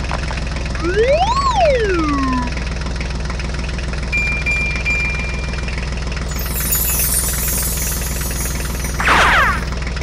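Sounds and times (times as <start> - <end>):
tractor engine chugging: 0.0 - 10.0
thin high steady tone: 6.3 - 9.7.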